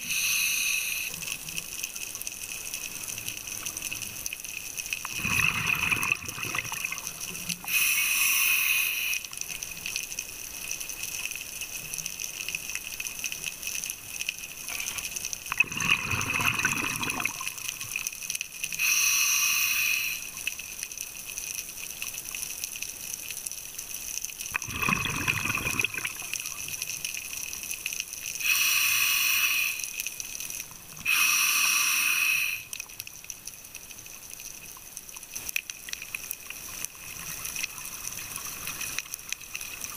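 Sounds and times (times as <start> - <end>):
regulator hissing inhalations: 0.0 - 1.2, 7.6 - 9.3, 18.8 - 20.3, 28.4 - 30.0, 31.0 - 32.8
bubbling exhalations: 5.0 - 7.8, 15.5 - 17.8, 24.6 - 26.5.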